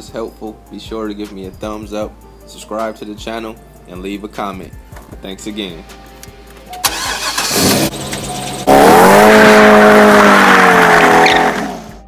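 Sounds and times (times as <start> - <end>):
car engine revving hard: 6.9 - 12.0
tires squealing: 6.9 - 12.0.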